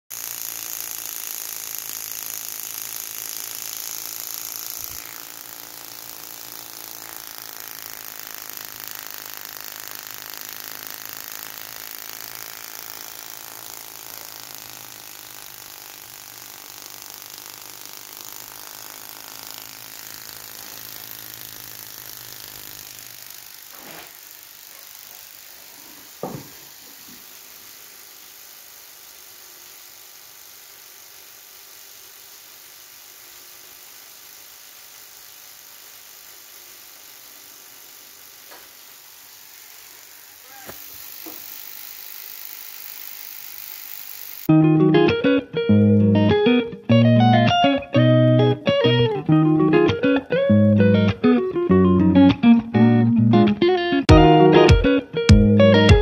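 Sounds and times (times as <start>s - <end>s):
spark plugs ticking: 0.0s - 44.5s.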